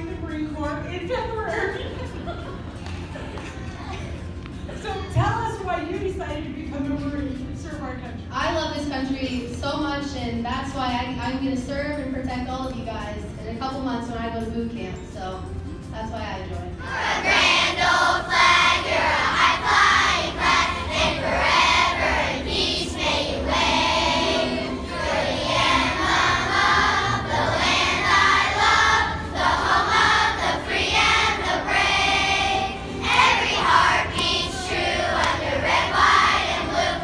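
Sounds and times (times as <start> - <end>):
children's choir singing: 16.8 - 37.0.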